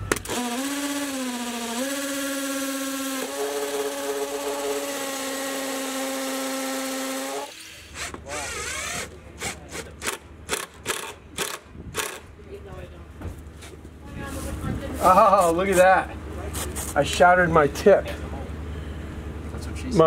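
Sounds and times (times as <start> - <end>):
cordless drill motor whine: 0.0 - 9.2
impact driver bursts: 0.0 - 12.2.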